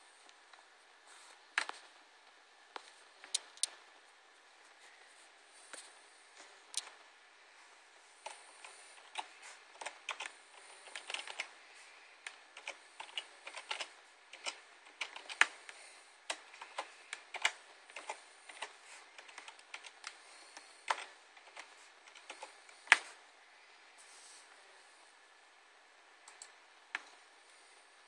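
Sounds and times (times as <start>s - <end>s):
typing on computer keyboard: 8.3s - 11.5s, 12.2s - 20.2s, 20.8s - 23.1s.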